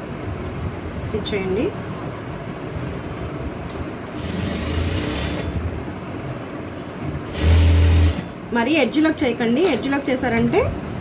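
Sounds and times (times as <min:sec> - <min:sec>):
sewing machine running: 0:04.2 - 0:05.6, 0:07.2 - 0:08.3.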